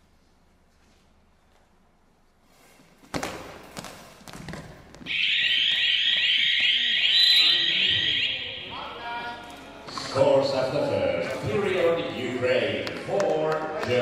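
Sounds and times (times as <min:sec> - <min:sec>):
buzzer high-pitched tone: 0:05.1 - 0:08.9.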